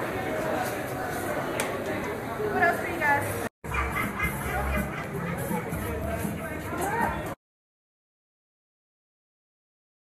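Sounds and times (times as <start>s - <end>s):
background chatter: 0.0s - 7.4s
music: 3.7s - 7.4s.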